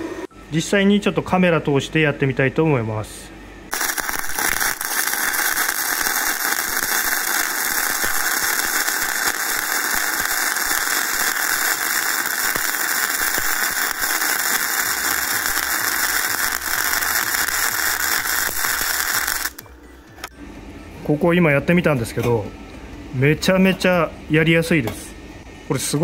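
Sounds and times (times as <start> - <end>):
welding arc crackling sizzle: 3.7 - 19.6.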